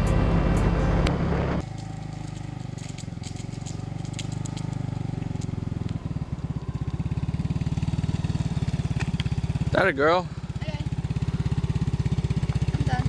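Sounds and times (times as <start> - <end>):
motor scooter engine putter: 1.6 - 7.1, 8.9 - 9.5.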